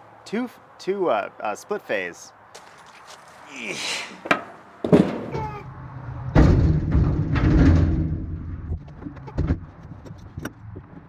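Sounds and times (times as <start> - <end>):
rustling handling noise: 2.6 - 3.5
low rumble: 5.6 - 9.1.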